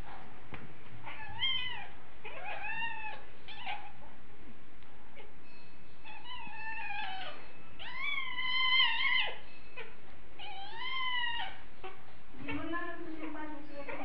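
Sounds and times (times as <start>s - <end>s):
cat meowing: 1.0s - 3.9s, 6.1s - 9.4s, 10.4s - 12.6s.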